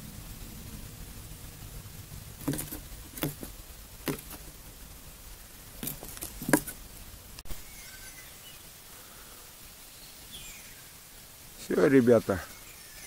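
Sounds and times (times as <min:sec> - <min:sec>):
bird knocking and scuffling in box: 0:02.4 - 0:04.5, 0:05.8 - 0:06.8.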